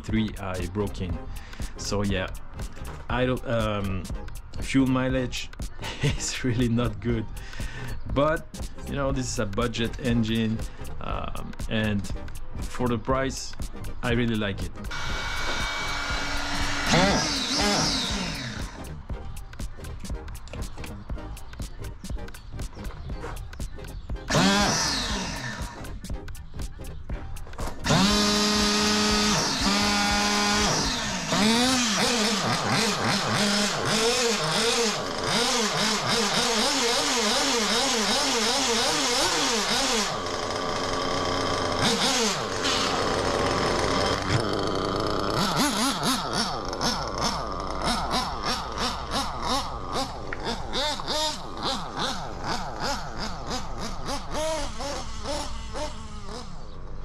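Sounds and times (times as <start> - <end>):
nitro engine starting and revving: 14.2 - 21.1, 22.3 - 26.4, 27.4 - 57.0.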